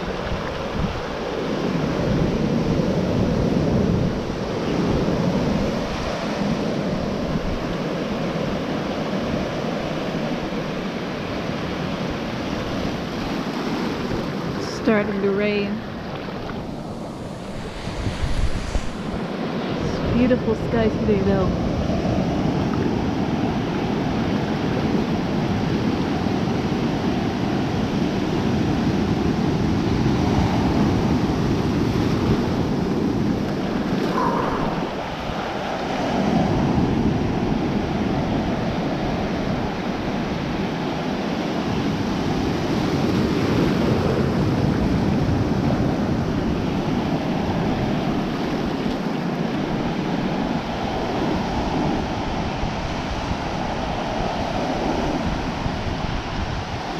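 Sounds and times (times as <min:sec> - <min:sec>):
ocean surf churning: 0:00.0 - 0:56.9
wind buffeting microphone: 0:00.0 - 0:56.9.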